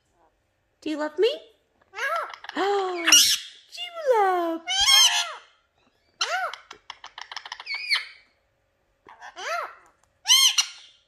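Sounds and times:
parakeets squawking: 1.8 - 3.7, 4.6 - 8.4, 9.0 - 11.0
parakeet clicking chatter: 6.2 - 8.2.

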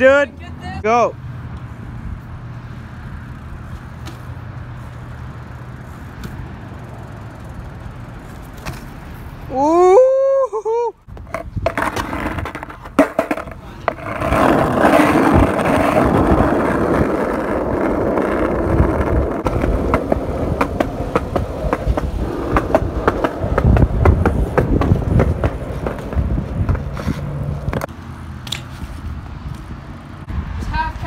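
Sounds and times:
skateboard wheels rumbling on pavement: 1.7 - 10.0, 11.1 - 31.0
sharp skateboard clicks: 11.1 - 28.8.

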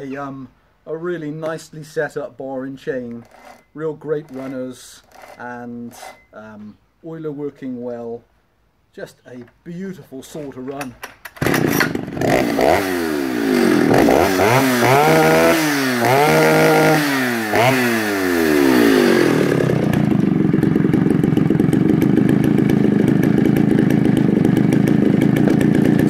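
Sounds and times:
chainsaw revving and idling: 3.1 - 6.2, 11.4 - 26.0.

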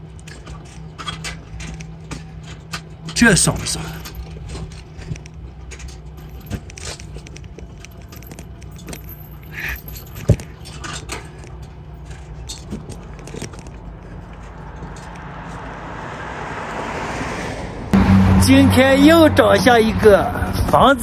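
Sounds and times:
metallic jingling and clicking: 0.0 - 15.6
low rolling rumble: 17.5 - 21.0.

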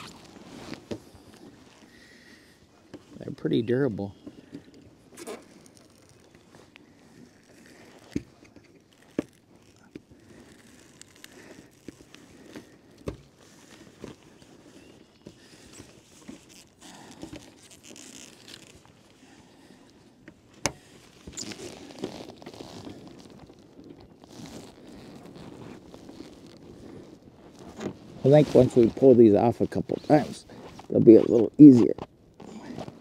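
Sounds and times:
nylon fabric rustling: 0.0 - 2.3, 4.9 - 20.2, 20.8 - 33.0.

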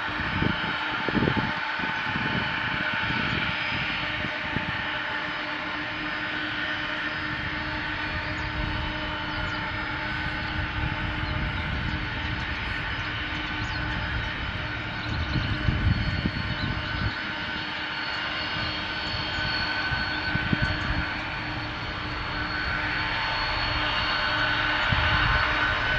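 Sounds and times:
jet engines whining: 0.0 - 25.9
low engine rumble: 5.5 - 25.9.

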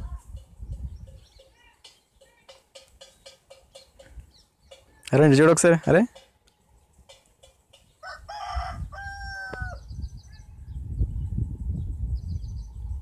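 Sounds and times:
small birds chirping: 0.0 - 8.1, 8.9 - 13.0
rooster crowing: 8.0 - 9.9.

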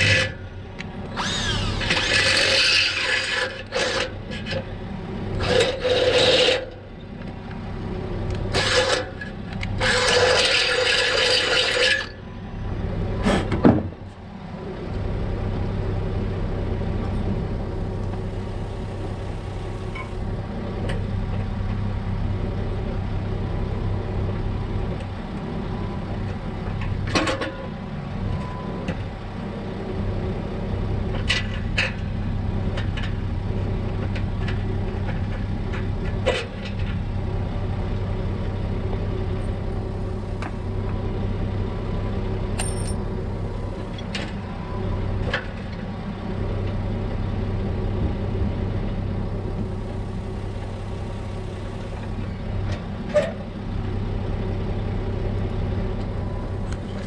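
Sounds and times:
vehicle engine idling: 14.3 - 27.0, 29.4 - 57.0.

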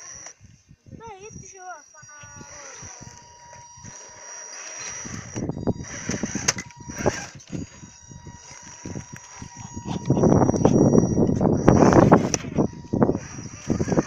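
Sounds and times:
electric motor whine: 0.0 - 14.0.

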